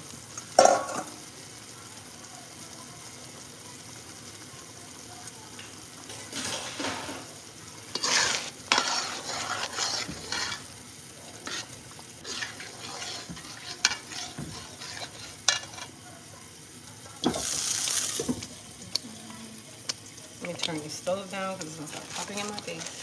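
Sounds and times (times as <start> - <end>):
sauce simmering in a pot: 0.0 - 23.0
ladle scraping and clattering: 7.9 - 10.7, 11.4 - 15.9.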